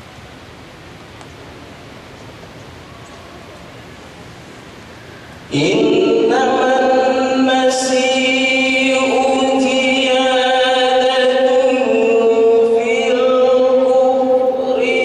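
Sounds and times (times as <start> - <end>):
man reciting melodically: 5.5 - 15.0.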